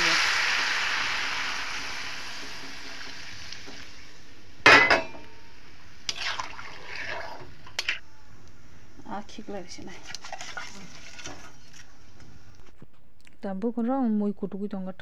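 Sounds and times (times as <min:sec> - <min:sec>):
water hissing in hot wok: 0:00.0 - 0:04.4, 0:05.7 - 0:07.7
clinks of pots and utensils: 0:04.7 - 0:05.4.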